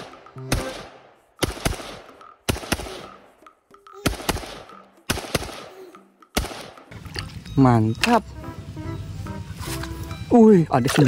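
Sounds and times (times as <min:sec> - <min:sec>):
rifle shots echoing: 0:00.0 - 0:03.3, 0:04.0 - 0:05.8, 0:06.4 - 0:06.9.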